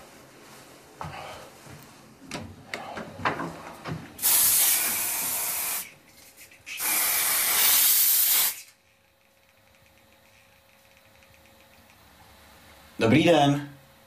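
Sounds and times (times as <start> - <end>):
aerosol can spraying: 4.2 - 8.8.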